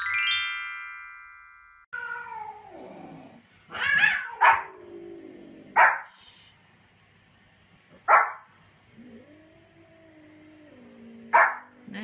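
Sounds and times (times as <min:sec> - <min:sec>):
chime: 0:00.0 - 0:01.9
small dog yapping: 0:03.7 - 0:04.8.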